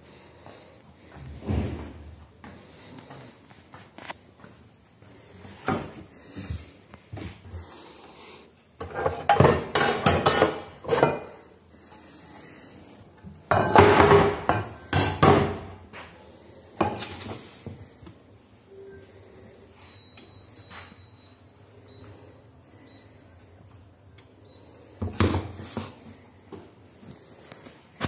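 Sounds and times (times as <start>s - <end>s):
metal pots and pans clanking: 8.8s - 11.4s, 13.5s - 15.7s.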